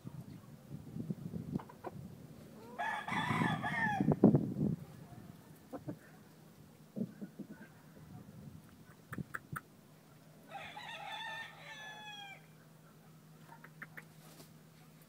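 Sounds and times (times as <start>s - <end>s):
rooster crowing: 2.6s - 4.2s, 10.5s - 12.6s.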